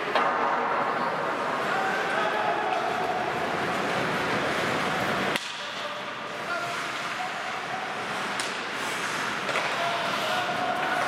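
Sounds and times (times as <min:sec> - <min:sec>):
sharp crack: 0:05.3 - 0:05.7
skates hissing on ice: 0:06.1 - 0:11.0.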